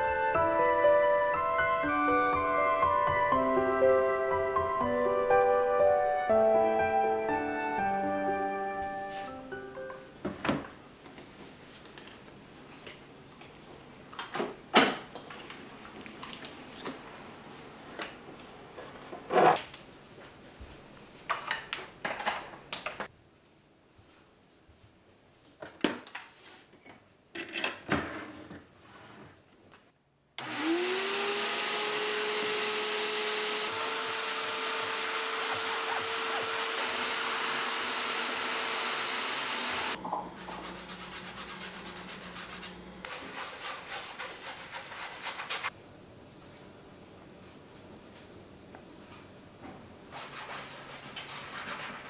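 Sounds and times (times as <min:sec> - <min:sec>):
carpet cleaner motor whining: 0:30.4 - 0:40.0.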